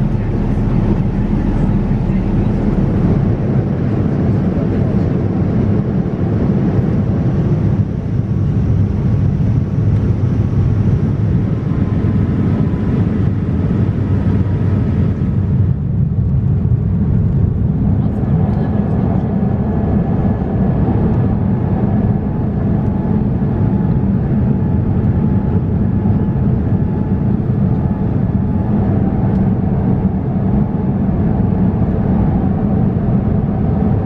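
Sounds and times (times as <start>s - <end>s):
airplane cabin rumble: 0.0s - 34.0s.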